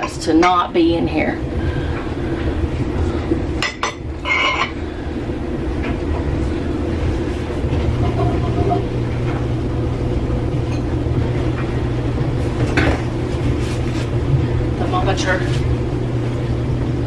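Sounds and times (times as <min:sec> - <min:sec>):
faint hum: 0:00.0 - 0:17.0
low mechanical rumble: 0:00.0 - 0:17.0
kitchen items clattering: 0:03.6 - 0:04.8, 0:07.8 - 0:09.4.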